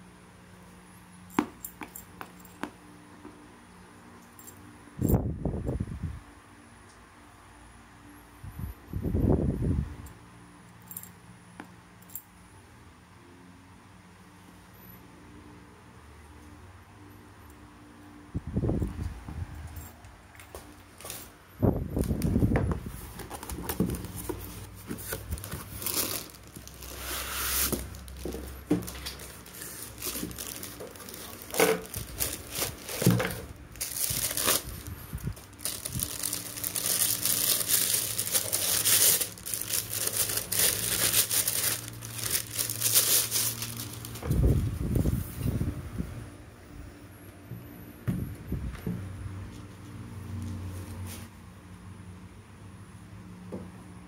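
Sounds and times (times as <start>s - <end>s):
cardboard and foam rustling: 22.0s - 45.6s
plastic wrapping crinkling and tearing: 23.1s - 44.6s
packaging knocks: 30.0s - 34.6s.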